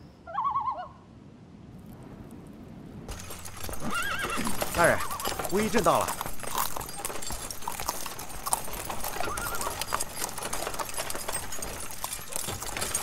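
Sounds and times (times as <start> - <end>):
horse hooves clip-clopping: 3.1 - 13.0.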